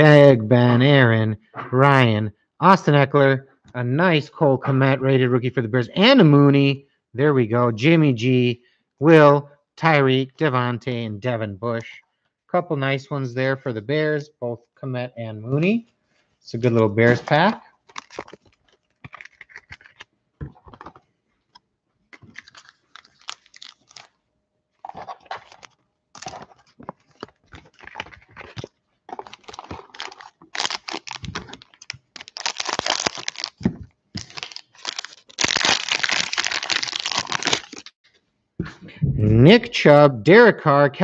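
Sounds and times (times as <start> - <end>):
cellophane wrapper crinkling and tearing: 17.2 - 38.0.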